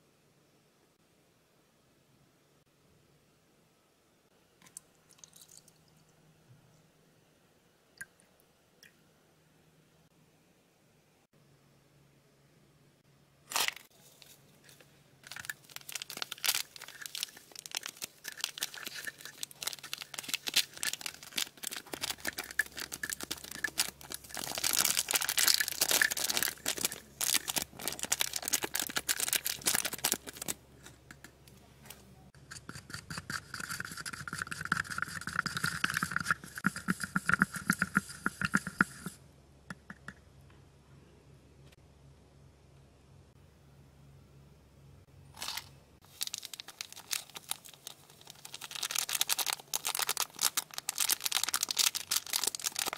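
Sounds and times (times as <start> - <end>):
foil packet crinkling and tearing: 15.2 - 30.6, 45.4 - 52.9
chopstick stirring in a cup: 16.8 - 27.5, 32.4 - 39.2.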